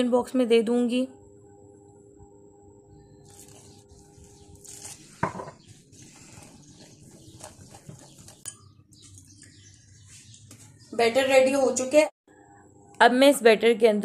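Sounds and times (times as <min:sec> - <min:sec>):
utensil stirring batter in glass bowl: 0:03.2 - 0:09.8.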